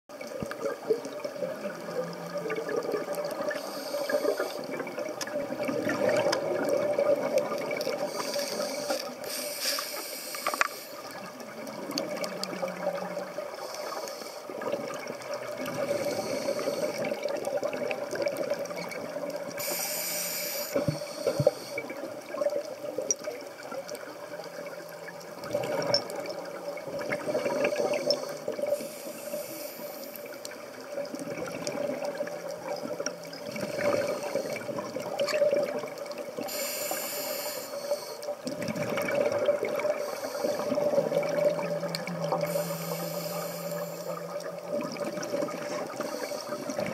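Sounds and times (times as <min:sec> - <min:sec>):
underwater bubbles gurgling: 0:00.1 - 0:46.9
low hum: 0:40.2 - 0:45.9.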